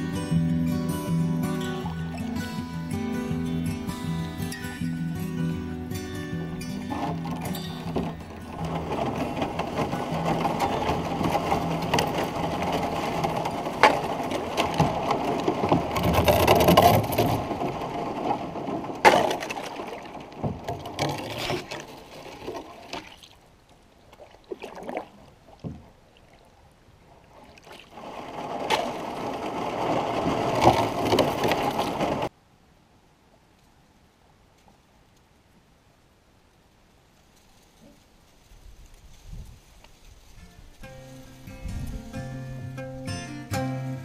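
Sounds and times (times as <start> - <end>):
paddle splashing in water: 1.1 - 32.3
paddle knocking on canoe hull: 6.9 - 18.4, 19.0 - 23.2, 24.5 - 25.9.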